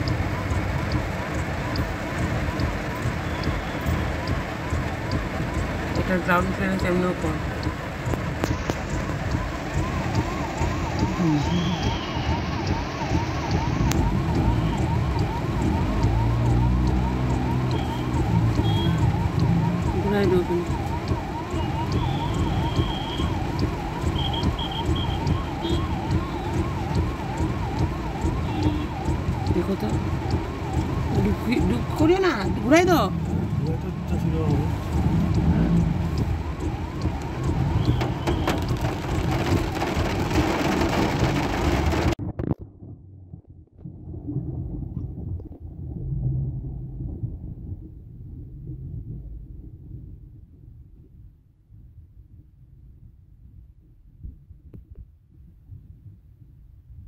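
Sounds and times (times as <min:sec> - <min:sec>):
emergency siren wailing: 0:00.0 - 0:42.2
traffic through flood water: 0:00.0 - 0:42.2
car engine hum passing: 0:04.0 - 0:28.4, 0:29.0 - 0:42.2.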